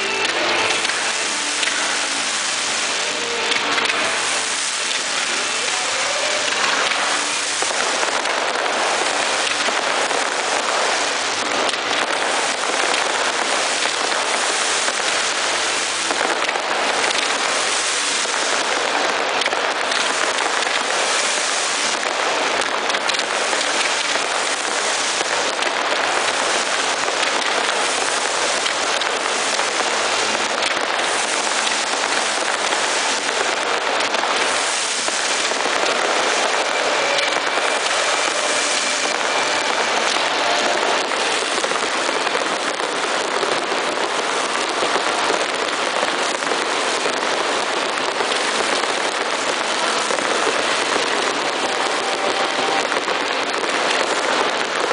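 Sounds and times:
fireworks fountains hissing crackle: 0:00.0 - 0:54.9.

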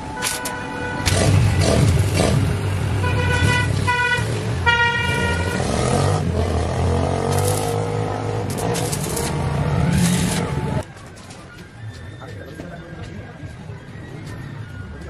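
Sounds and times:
road traffic rumble: 0:00.0 - 0:11.7
vehicle horn tooting: 0:03.0 - 0:06.1.

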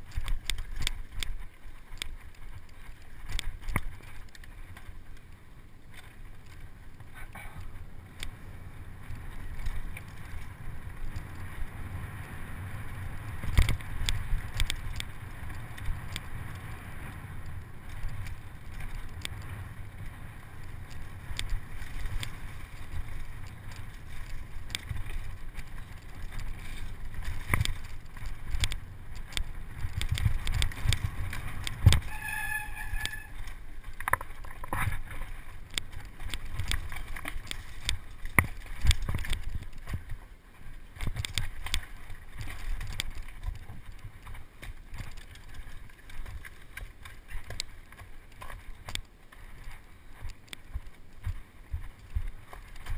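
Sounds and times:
bike clicks knocks and rattles: 0:00.0 - 0:52.9
tyres on dirt: 0:00.0 - 0:52.9
wind on microphone: 0:08.6 - 0:52.9
short high-pitched squeal: 0:32.0 - 0:33.4.

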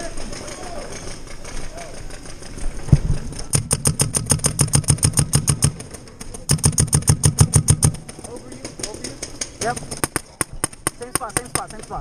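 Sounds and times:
paintball marker firing: 0:02.9 - 0:12.0.

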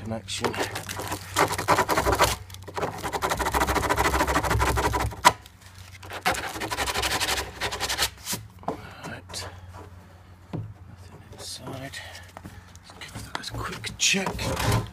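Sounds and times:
sandpaper scratching plastic: 0:00.4 - 0:08.5.

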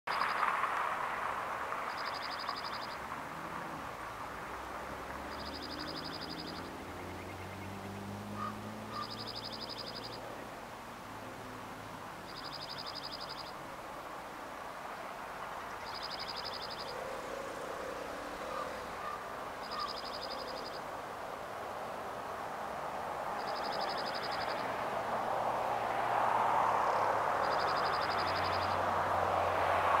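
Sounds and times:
bird singing rapid trill: 0:01.9 - 0:03.0, 0:05.3 - 0:10.2, 0:12.3 - 0:13.6, 0:15.7 - 0:17.0, 0:19.0 - 0:20.8, 0:23.4 - 0:24.7, 0:27.4 - 0:28.8.

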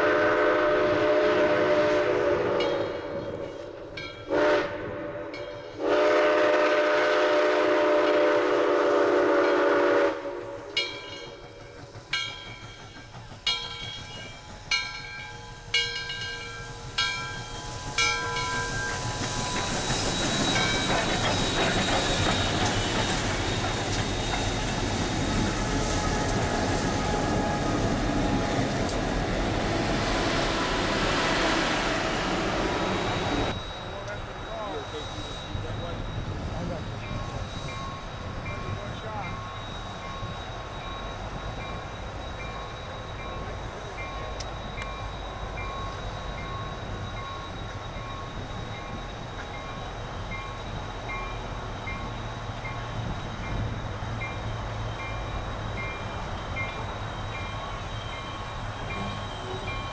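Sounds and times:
steam whistle blowing: 0:00.0 - 0:10.8
train rumbling on rails: 0:00.0 - 0:59.9
bell clanging: 0:10.8 - 0:21.8.

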